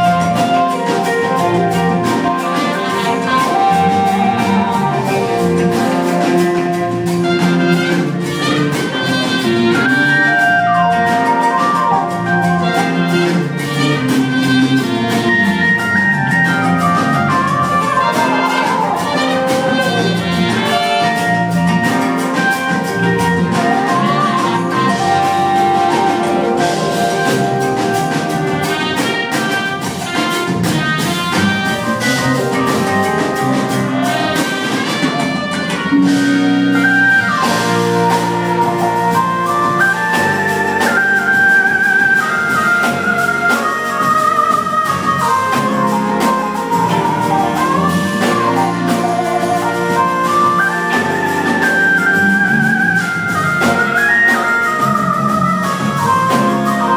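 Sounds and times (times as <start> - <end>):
jazz-funk band playing: 0.0 - 56.9
trumpet lead line: 0.0 - 56.9.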